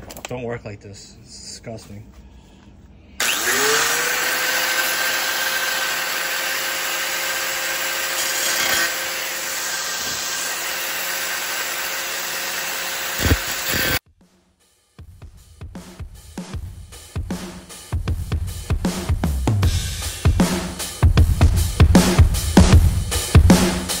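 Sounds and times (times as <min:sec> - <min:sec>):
angle grinder whining: 0:03.2 - 0:14.0.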